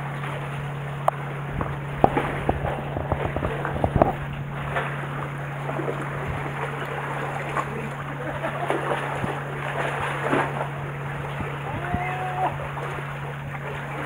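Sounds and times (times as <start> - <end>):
sea water washing among concrete: 0.0 - 14.0
steady low hum: 0.0 - 14.0
wind on the microphone: 1.4 - 4.8, 6.0 - 6.6, 9.0 - 13.2.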